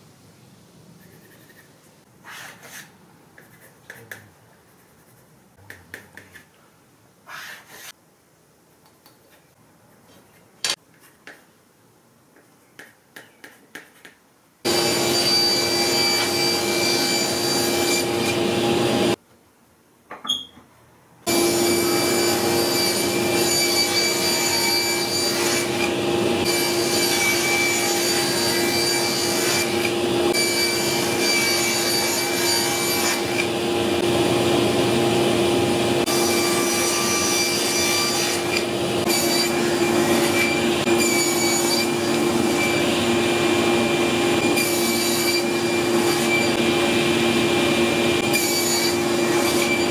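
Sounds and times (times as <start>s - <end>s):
table saw cutting plywood: 14.7s - 19.2s, 21.3s - 49.9s.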